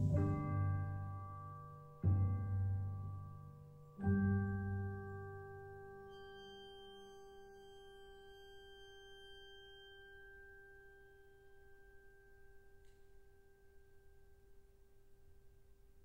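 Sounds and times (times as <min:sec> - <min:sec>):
percussion chord ringing: 0:00.0 - 0:02.9.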